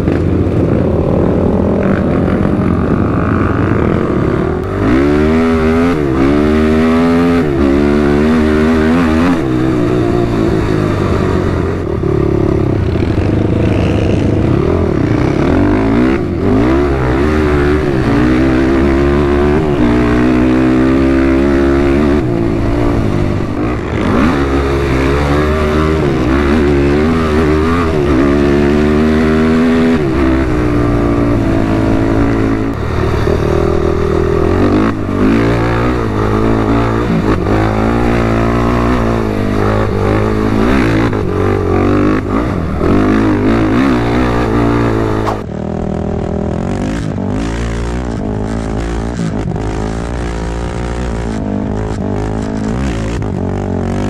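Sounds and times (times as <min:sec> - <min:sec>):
atv engine revving: 0:00.0 - 0:54.0
steady rushing noise: 0:00.0 - 0:54.0.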